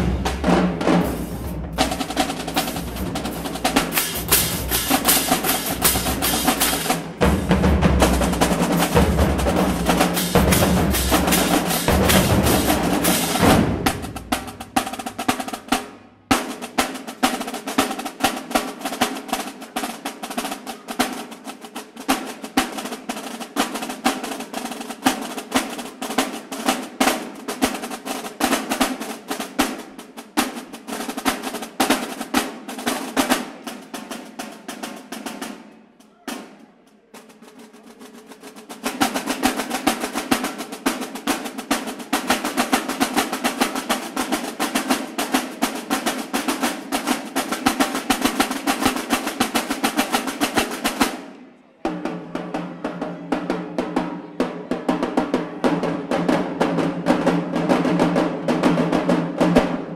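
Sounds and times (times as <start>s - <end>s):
bass drums: 0.0s - 15.3s
snare drums playing fast: 0.0s - 51.2s, 51.9s - 59.9s.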